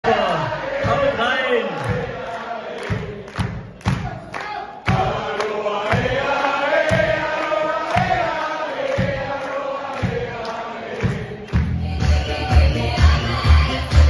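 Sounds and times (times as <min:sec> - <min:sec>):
crowd singing a chant: 0:00.0 - 0:04.1, 0:04.8 - 0:14.0
bass drum beat: 0:11.0 - 0:14.0.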